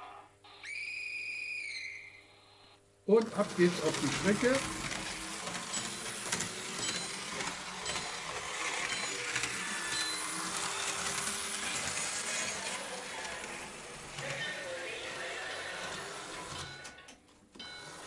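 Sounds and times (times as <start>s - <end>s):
model railcar whirring: 3.1s - 16.7s.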